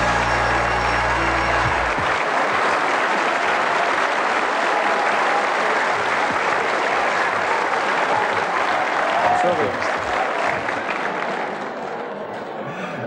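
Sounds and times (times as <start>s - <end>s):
music sting: 0.0s - 2.2s
studio audience applauding: 0.0s - 12.6s.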